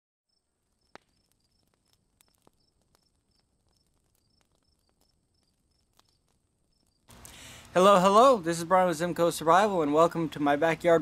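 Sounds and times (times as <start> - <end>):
faint insect chirping: 0.3 - 7.6
faint ticks: 0.8 - 7.5.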